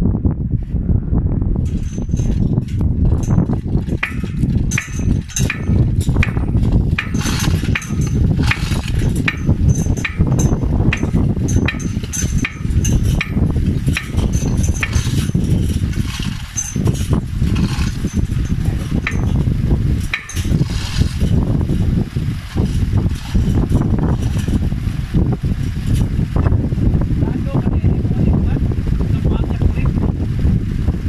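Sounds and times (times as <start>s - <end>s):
low rumble: 0.0s - 31.0s
chain hoist metallic clinking: 1.6s - 21.8s, 22.4s - 24.7s.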